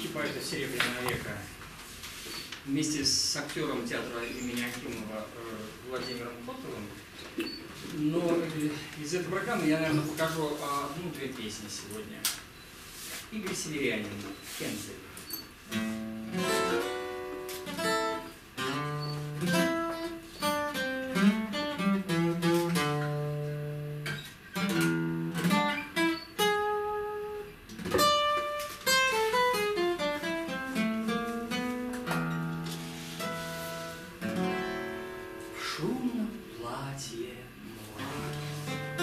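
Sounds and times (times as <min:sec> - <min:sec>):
acoustic guitar playing: 0:15.5 - 0:39.0.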